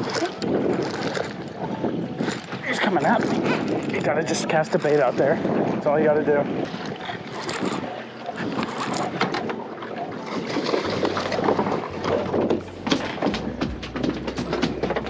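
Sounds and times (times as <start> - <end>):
wind on microphone: 0.0 - 15.0
low hum: 10.7 - 15.0.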